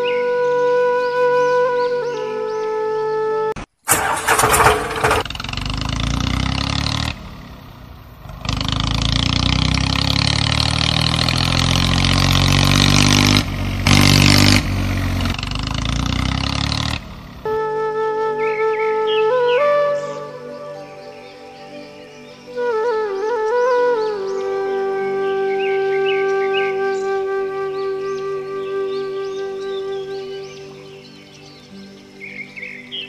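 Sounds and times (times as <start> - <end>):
flute music: 0.0 - 4.5, 17.4 - 33.0
diesel tractor engine: 3.9 - 17.6.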